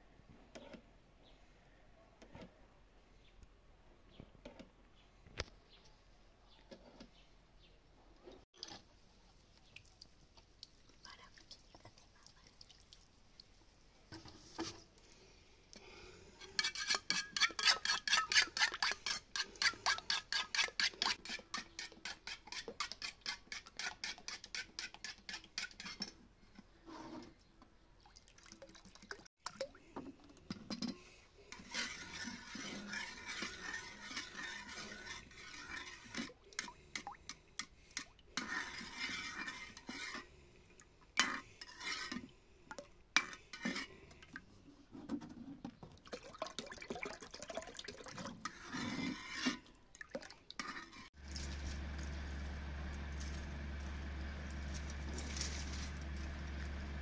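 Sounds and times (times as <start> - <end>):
utensil stirring and scraping bowl: 16.4 - 26.2, 30.8 - 40.4, 41.2 - 42.3, 43.2 - 44.0, 48.2 - 49.7, 50.6 - 51.9.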